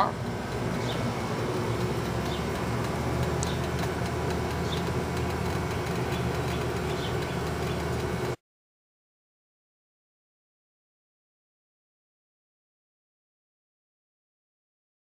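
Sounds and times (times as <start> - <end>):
low mechanical hum and rumble: 0.0 - 8.4.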